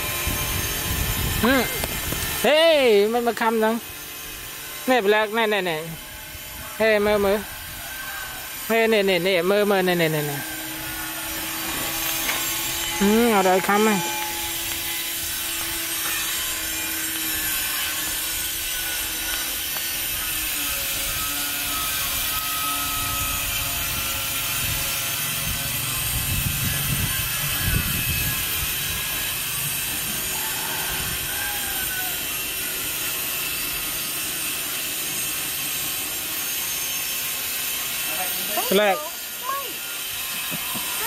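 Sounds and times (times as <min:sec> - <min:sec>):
machine drone with hiss: 0:00.0 - 0:41.0.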